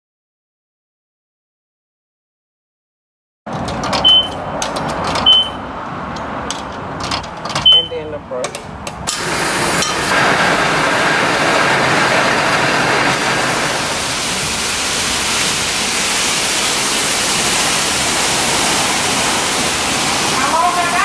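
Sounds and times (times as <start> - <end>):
pressure washer spraying water: 9.1 - 21.0.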